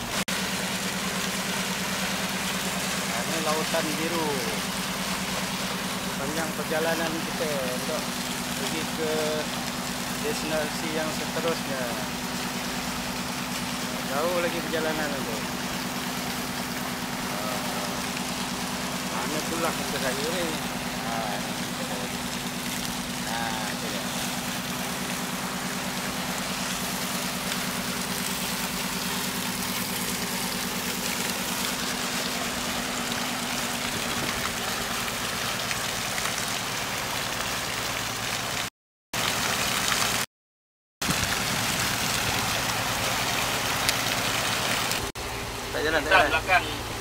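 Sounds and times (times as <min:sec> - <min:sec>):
boat engine hum: 0:00.0 - 0:40.2, 0:41.0 - 0:47.0
wind and water on microphone: 0:41.0 - 0:45.1.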